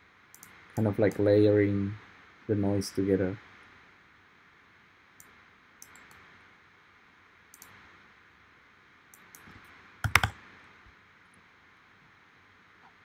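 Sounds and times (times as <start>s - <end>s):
low steady hiss: 0.0s - 13.0s
computer mouse clicks: 0.3s - 1.3s, 5.2s - 6.3s, 7.5s - 7.8s, 9.1s - 10.4s.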